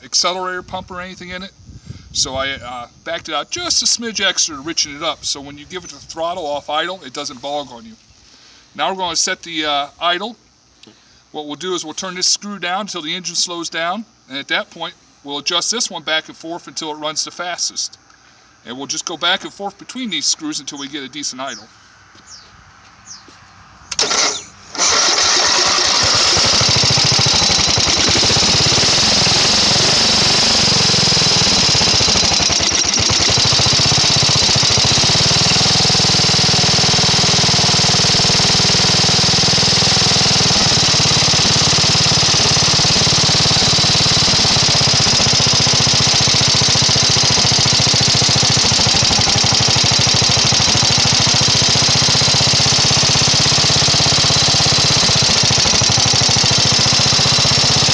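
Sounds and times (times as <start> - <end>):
small engine running: 23.9 - 57.9.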